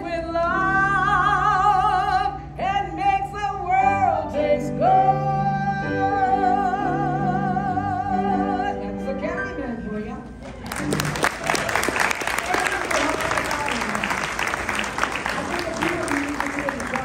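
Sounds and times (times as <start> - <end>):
woman singing with vibrato: 0.0 - 10.4.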